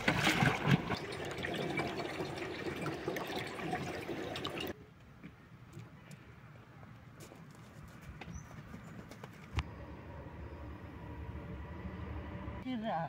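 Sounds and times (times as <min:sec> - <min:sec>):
water filling plastic jerrycan: 0:00.0 - 0:04.8.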